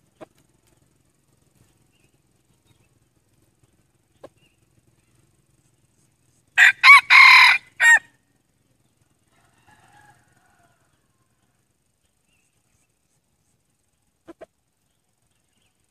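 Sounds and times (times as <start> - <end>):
rooster crowing: 6.6 - 8.2, 9.2 - 11.4.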